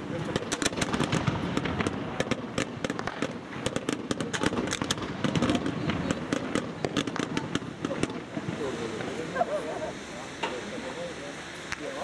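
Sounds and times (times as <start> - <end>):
fireworks pops and bangs: 0.0 - 9.4, 11.6 - 12.0
continuous rumble: 0.0 - 12.0.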